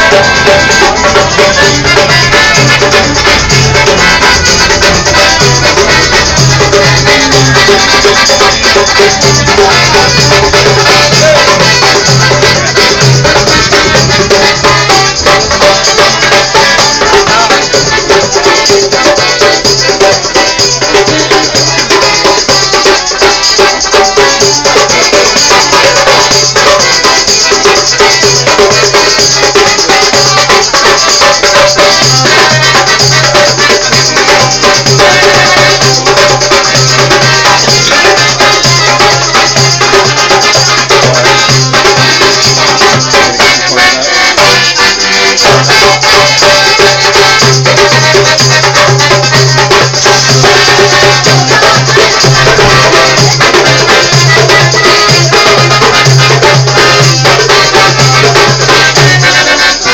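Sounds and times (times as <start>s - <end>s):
accordion: 0.0s - 59.9s
acoustic guitar: 0.0s - 59.9s
hand drum beating: 0.0s - 59.9s.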